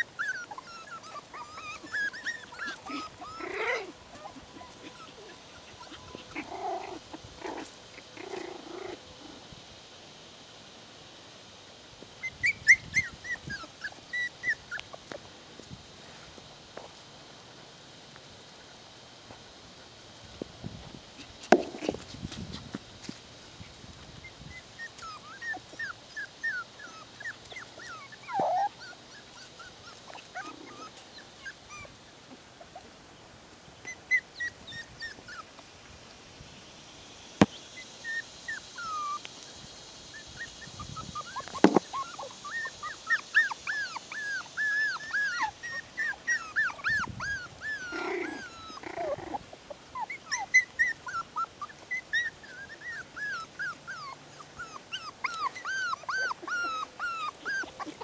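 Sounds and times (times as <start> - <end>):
puppies whimpering and yipping: 0.0 - 8.7, 12.2 - 15.0, 24.2 - 32.9, 33.8 - 35.7, 37.6 - 58.0.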